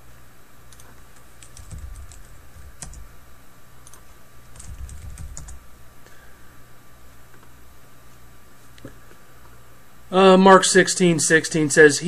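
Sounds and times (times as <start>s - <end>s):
typing on keyboard: 0.7s - 3.1s, 3.8s - 5.6s.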